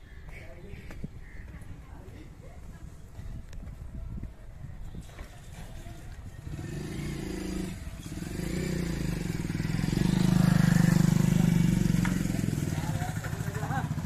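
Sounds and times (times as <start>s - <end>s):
motorcycle passing by: 5.8s - 14.0s.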